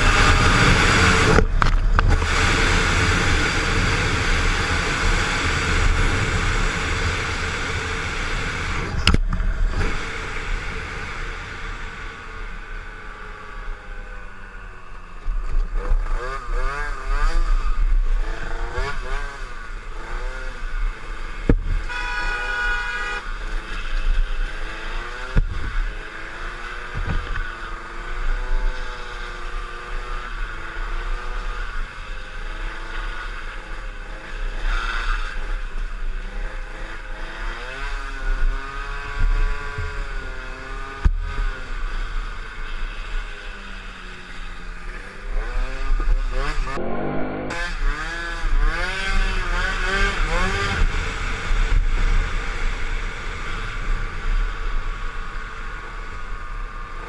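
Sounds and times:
motor scooter engine revving: 0.0 - 57.0
steady tone: 46.0 - 48.5.

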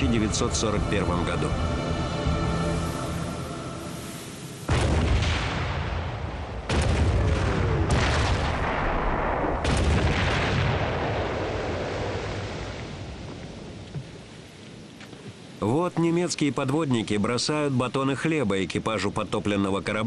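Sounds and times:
heavy blasts with rolling rumble: 2.3 - 14.4.

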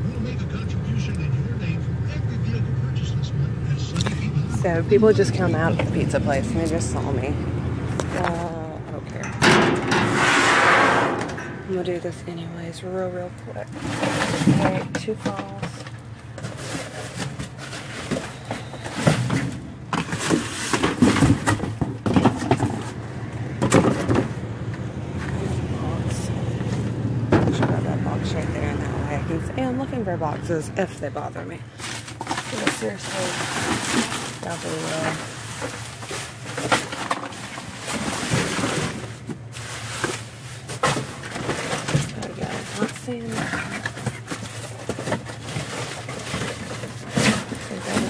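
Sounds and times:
trash rustling and knocking: 7.8 - 12.2, 12.8 - 28.1, 31.1 - 48.0
sharp knocks and clatters: 14.0 - 24.4.

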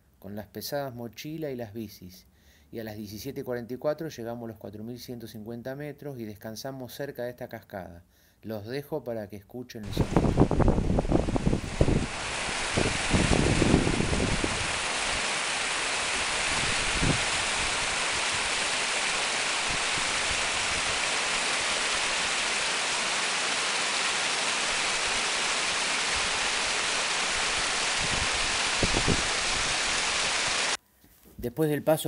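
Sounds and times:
waterfall splashing over rocks: 9.9 - 30.8.

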